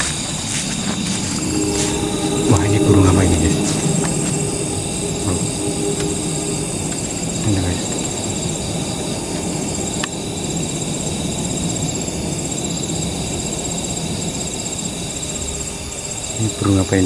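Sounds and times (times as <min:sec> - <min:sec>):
insects trilling: 0:00.0 - 0:17.0
low rushing noise: 0:01.1 - 0:10.9.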